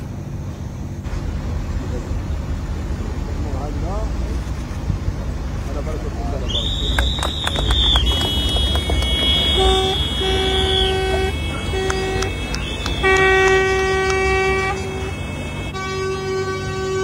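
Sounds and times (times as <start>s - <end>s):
truck horns blasting: 6.5s - 17.0s.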